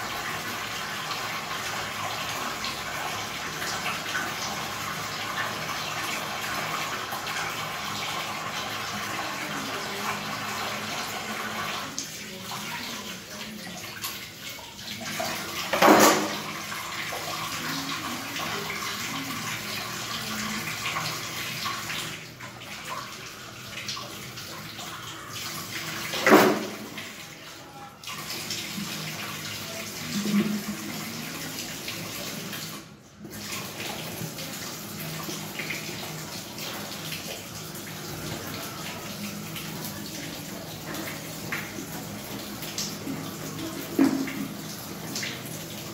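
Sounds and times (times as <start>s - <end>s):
tap water running into sink: 0.0s - 45.9s
utensils being washed: 10.8s - 27.2s, 28.1s - 45.9s.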